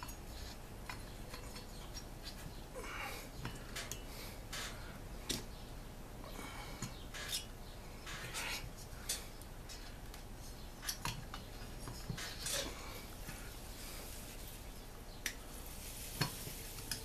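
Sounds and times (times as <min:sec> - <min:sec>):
metallic clicks and scrapes: 0:08.1 - 0:12.8.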